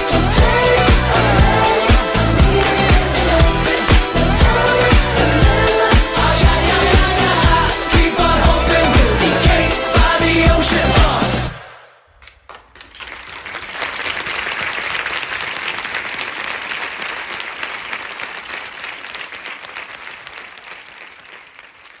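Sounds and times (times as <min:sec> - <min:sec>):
dance music: 0:00.0 - 0:11.8
audience applause: 0:12.5 - 0:22.0.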